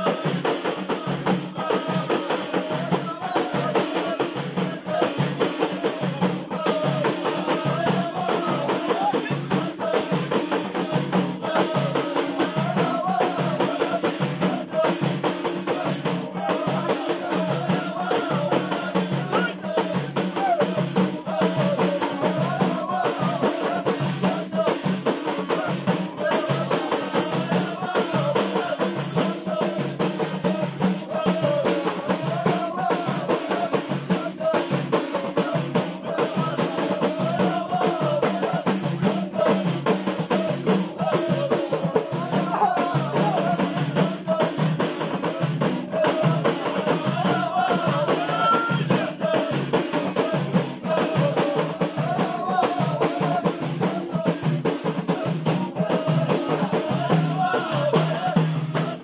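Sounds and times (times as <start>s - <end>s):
frame drums beating: 0.0s - 59.0s
men singing unison chant: 0.0s - 59.0s.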